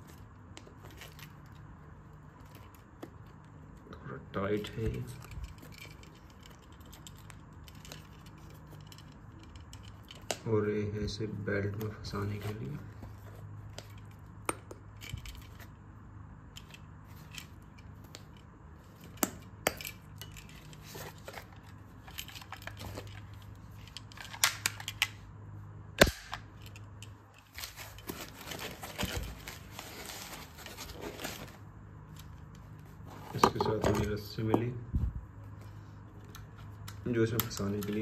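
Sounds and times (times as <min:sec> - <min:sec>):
holster rustling: 0:00.0 - 0:03.8, 0:04.6 - 0:10.3, 0:16.6 - 0:24.9, 0:26.5 - 0:34.2.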